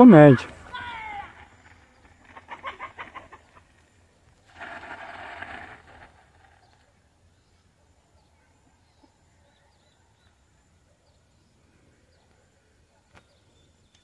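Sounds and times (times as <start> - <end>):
faint bird chirps: 6.4 - 14.0.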